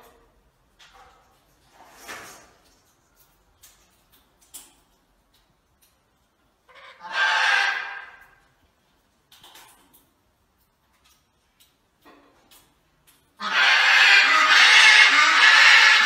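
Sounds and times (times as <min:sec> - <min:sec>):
macaw calling harshly: 0:13.4 - 0:16.0.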